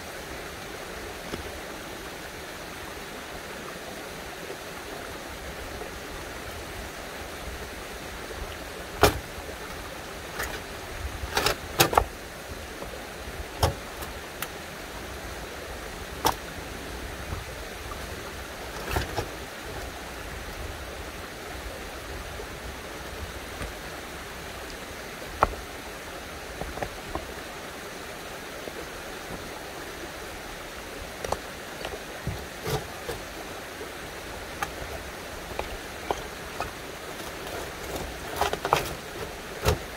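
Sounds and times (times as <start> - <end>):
running water rushing: 0.0 - 39.9
stones knocking together: 9.0 - 9.3, 34.5 - 39.9.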